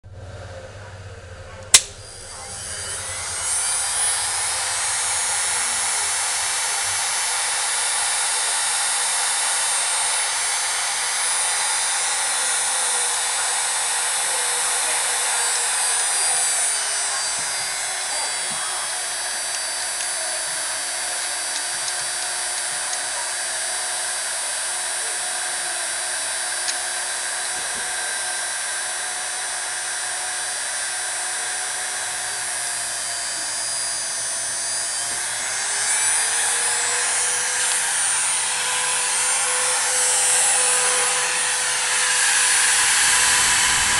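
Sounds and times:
heat gun switch click: 0:01.7 - 0:02.3, 0:26.6 - 0:26.8
heat gun blowing hiss with whine: 0:01.7 - 0:43.9.

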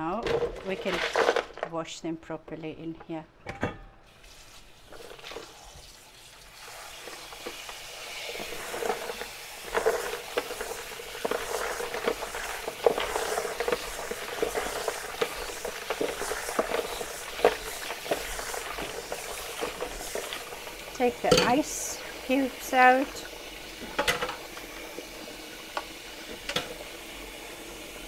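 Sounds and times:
hands stirring slices in water: 0:06.6 - 0:26.9.

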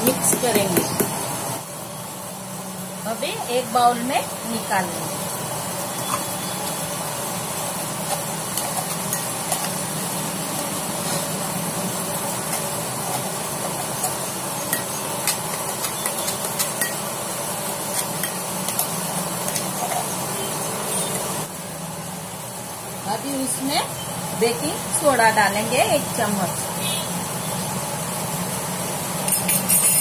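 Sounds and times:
spoon scraping metal jar: 0:12.4 - 0:17.0, 0:29.3 - 0:30.0.

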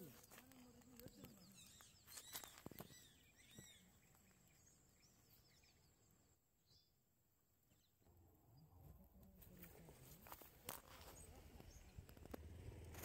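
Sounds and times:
faint bird chirps: 0:00.0 - 0:07.0.

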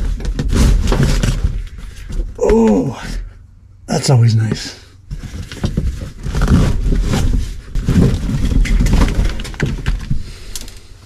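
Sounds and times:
car seat cushion creaking and knocking: 0:05.1 - 0:08.8.

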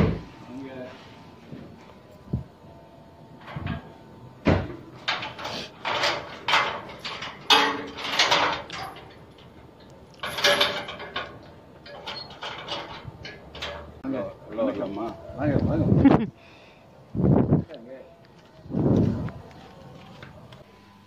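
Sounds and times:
metal gate rattling and clanking: 0:03.4 - 0:14.8.

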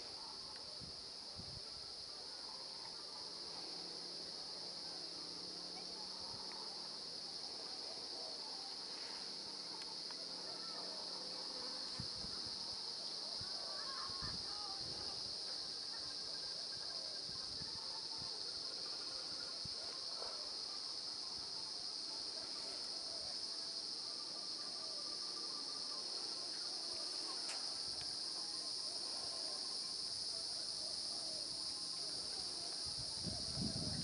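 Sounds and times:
insect chorus droning: 0:00.0 - 0:34.0.

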